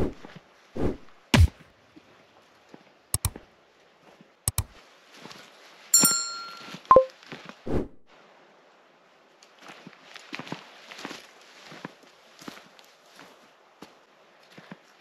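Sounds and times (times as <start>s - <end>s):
sharp double clicks: 3.2s - 3.4s, 4.5s - 4.7s
bell-like ding: 6.0s - 7.1s.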